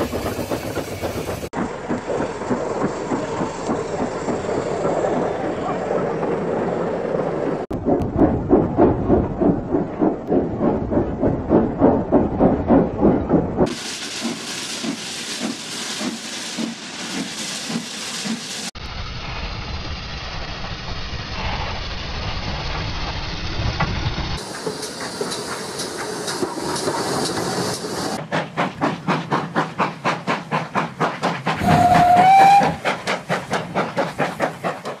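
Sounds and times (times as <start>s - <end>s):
steam locomotive exhaust chuffing: 0.0s - 35.0s
steam whistle blast: 31.6s - 32.8s.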